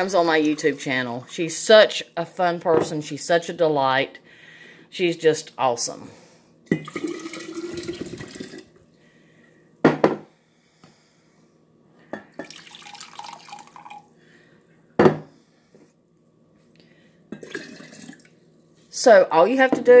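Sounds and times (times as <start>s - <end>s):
liquid pouring into glass jar: 6.8s - 8.7s, 12.4s - 14.1s, 17.4s - 18.3s
glass knocking on countertop: 9.8s - 10.2s, 15.0s - 15.3s.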